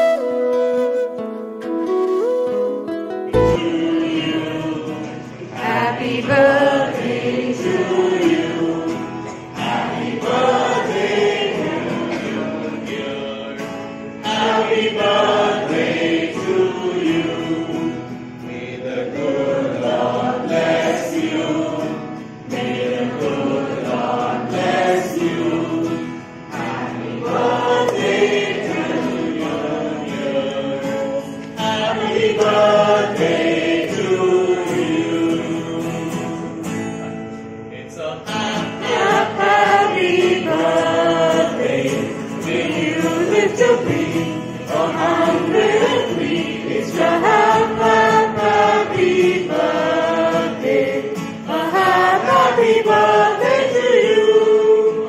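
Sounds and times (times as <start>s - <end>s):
instrumental backing: 0.0s - 4.5s
group singing: 3.3s - 37.1s, 38.2s - 55.0s.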